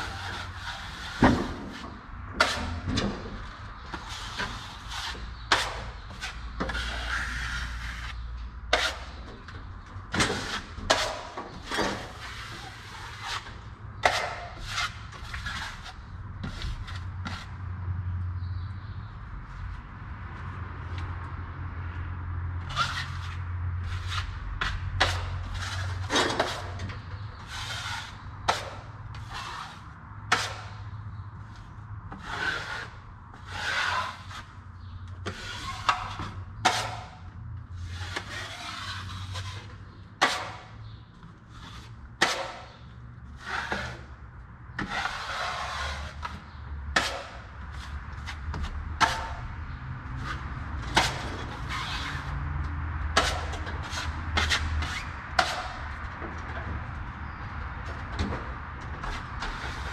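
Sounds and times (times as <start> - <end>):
taping knife scraping: 0.0 - 2.8, 3.9 - 9.2, 10.2 - 17.6, 22.7 - 30.9, 32.1 - 40.8, 41.5 - 44.1, 44.8 - 49.5, 50.1 - 52.4, 53.2 - 55.9.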